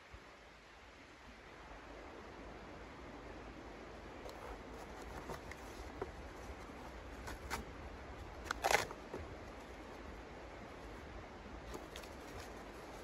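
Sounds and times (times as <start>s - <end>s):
wood pieces clicking and scraping: 8.3s - 9.8s.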